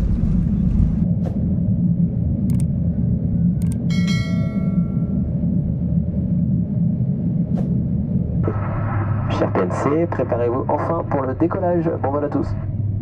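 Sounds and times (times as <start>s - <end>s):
aircraft cabin rumble: 0.0s - 13.0s
sharp clicks: 2.4s - 2.7s, 3.6s - 3.9s
cabin chime: 3.9s - 5.2s.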